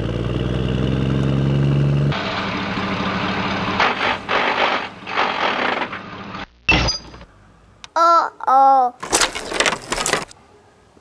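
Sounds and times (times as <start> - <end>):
rough engine rumble: 0.0 - 6.4
truck engine drone: 0.0 - 6.7.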